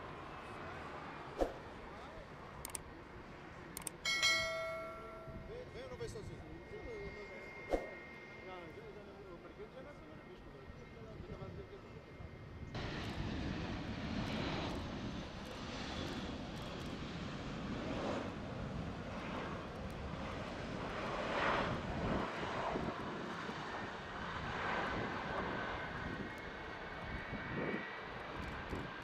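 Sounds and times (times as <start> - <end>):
jet engines rumbling with whine: 0.0 - 29.0.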